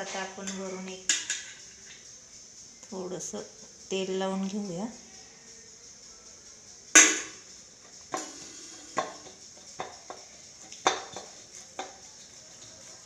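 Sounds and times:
dough knocking on steel plate: 7.0 - 7.4, 8.1 - 12.0.

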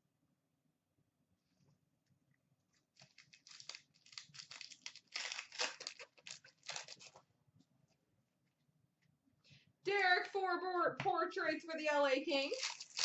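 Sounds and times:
plastic wrapper crinkling and tearing: 2.9 - 7.2, 12.5 - 13.0.

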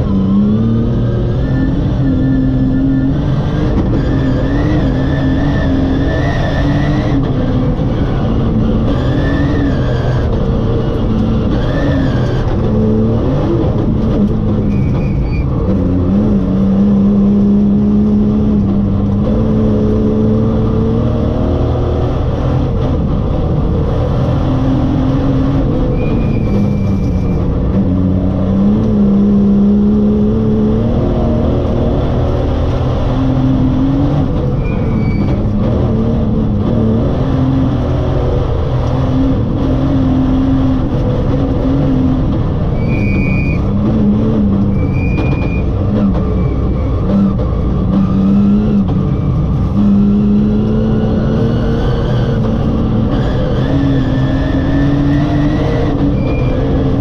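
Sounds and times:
rally car engine revving: 0.0 - 57.0.

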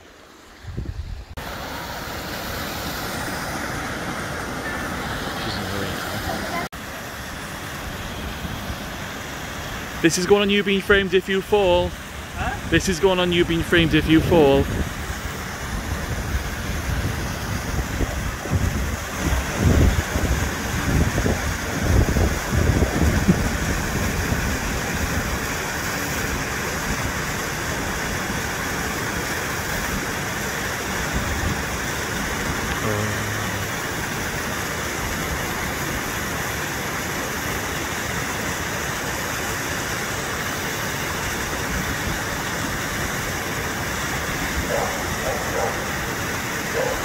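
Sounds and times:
waterfall rushing: 0.0 - 47.0
wind buffeting microphone: 0.6 - 1.4, 14.6 - 25.5.

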